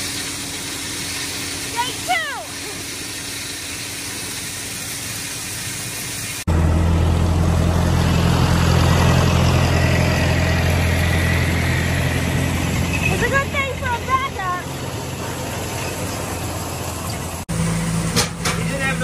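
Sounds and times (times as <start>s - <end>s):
grain pouring hiss: 0.0s - 6.5s
tractor engine running: 6.5s - 19.0s.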